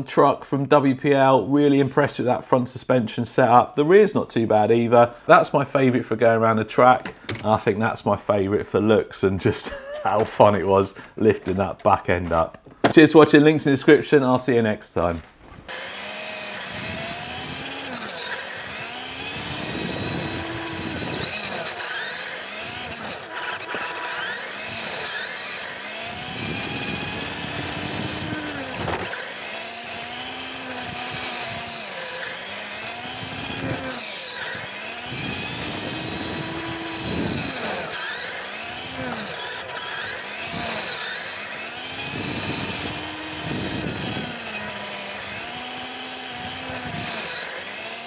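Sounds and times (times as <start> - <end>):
toy truck electric motor whining: 15.7 - 48.0.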